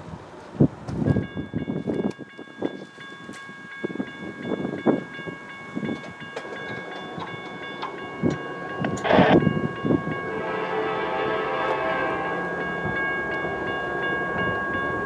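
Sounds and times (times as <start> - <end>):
wind buffeting microphone: 0.0 - 15.0
distant train air horn: 10.2 - 12.7.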